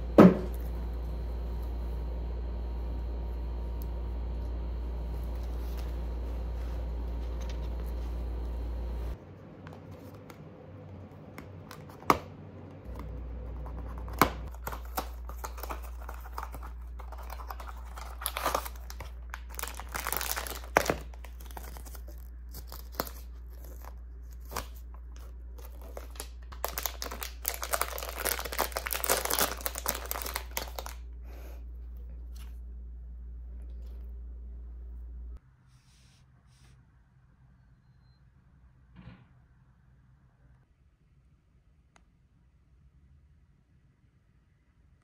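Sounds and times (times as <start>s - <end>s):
foil wrapper tearing and crinkling: 14.4s - 31.0s.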